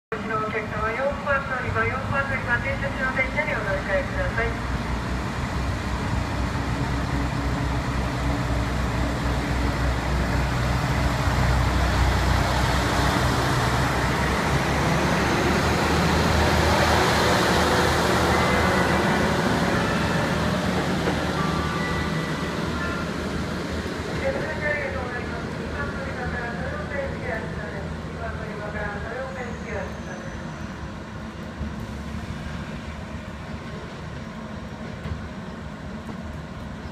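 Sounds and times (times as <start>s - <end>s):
diesel railcar engine: 0.1s - 36.9s
train wheels on rails: 4.7s - 24.7s, 30.4s - 36.9s.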